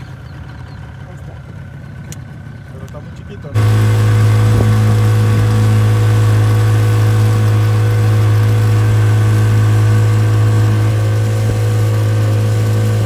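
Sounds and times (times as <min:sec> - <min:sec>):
outboard motor humming: 0:00.0 - 0:13.0
rush of boat wake: 0:03.5 - 0:13.0.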